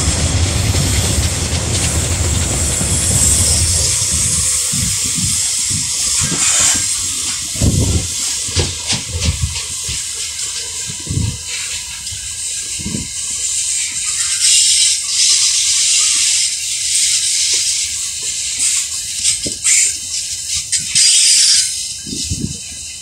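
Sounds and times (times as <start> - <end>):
wind buffeting microphone: 0.0 - 13.2, 22.0 - 22.8
freight train wheels on track: 0.0 - 23.0.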